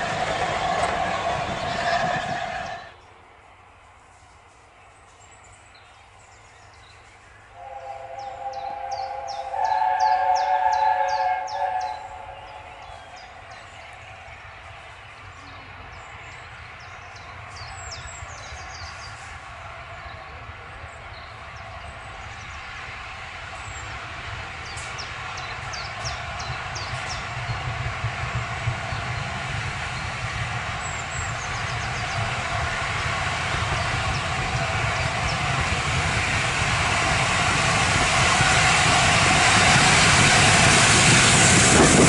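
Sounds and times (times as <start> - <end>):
train rumbling on rails: 0.0 - 42.0
steam locomotive chime whistle: 7.6 - 13.4.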